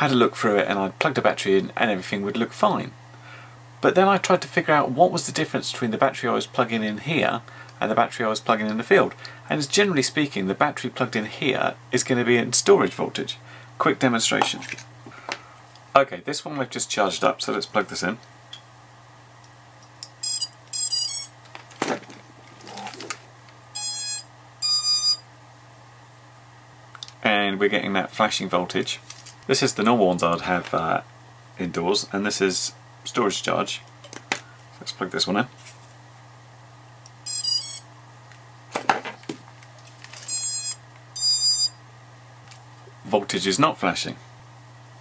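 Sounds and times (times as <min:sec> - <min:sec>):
long beeps: 0:20.2 - 0:21.3, 0:23.8 - 0:25.2, 0:37.2 - 0:37.8, 0:40.3 - 0:41.8
stepped electronic beeps: 0:20.2 - 0:21.3, 0:37.3 - 0:37.8, 0:40.3 - 0:41.8
handling rustle: 0:29.0 - 0:29.5, 0:39.2 - 0:40.3.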